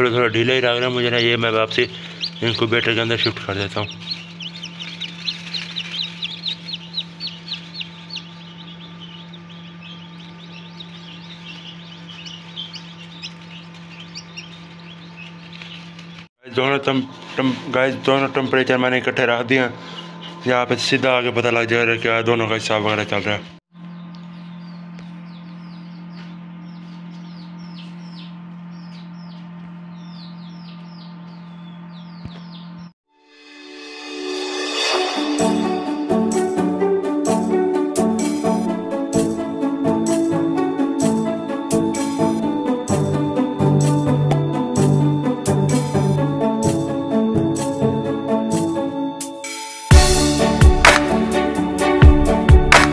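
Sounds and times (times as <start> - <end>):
steady low hum: 0.0 - 16.3
chicks peeping: 0.0 - 32.9, 37.2 - 49.2.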